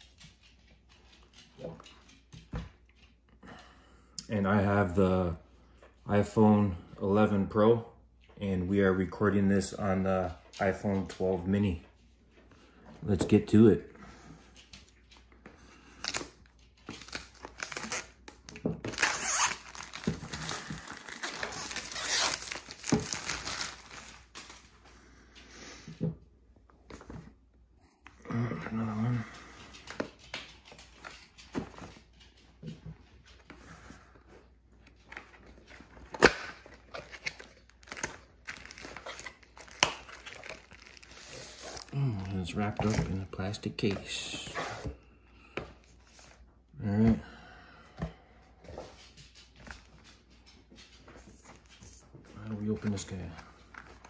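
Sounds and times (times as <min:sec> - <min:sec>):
plastic wrap crinkling: 0:15.8 - 0:24.8, 0:34.8 - 0:44.6.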